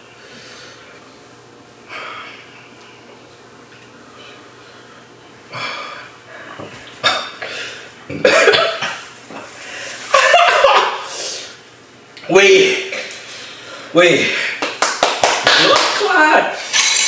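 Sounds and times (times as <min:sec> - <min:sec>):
man and woman coughing: 0:08.1 - 0:09.0
man and woman laughing: 0:10.1 - 0:11.1.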